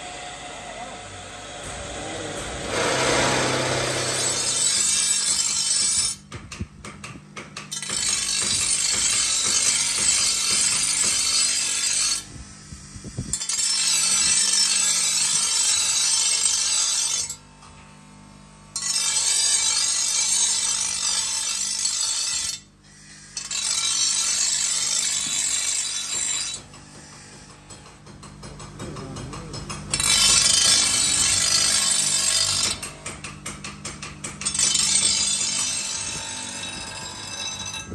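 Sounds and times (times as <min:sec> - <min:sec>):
power grinder on steel: 0:00.0 - 0:06.2, 0:07.7 - 0:12.3, 0:13.3 - 0:17.8, 0:18.7 - 0:27.8, 0:29.9 - 0:33.1, 0:34.4 - 0:37.9
low motor hum: 0:00.0 - 0:06.4.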